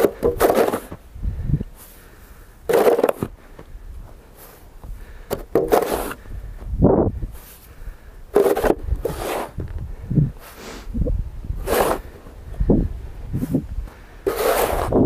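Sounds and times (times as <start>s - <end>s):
snow shovel scraping pavement: 0.0s - 1.0s, 2.7s - 3.4s, 5.5s - 6.2s, 8.3s - 9.6s, 11.6s - 12.2s, 14.2s - 15.0s.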